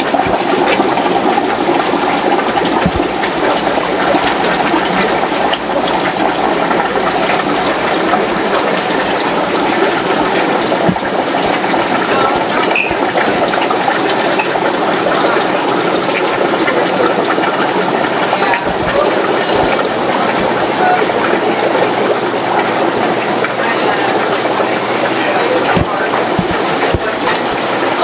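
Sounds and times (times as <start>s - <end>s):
aquarium filter water rushing: 0.0s - 28.0s
high beep: 12.7s - 13.0s.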